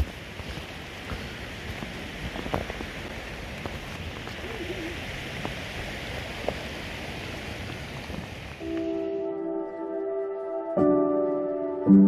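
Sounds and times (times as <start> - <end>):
rushing water: 0.0 - 9.2.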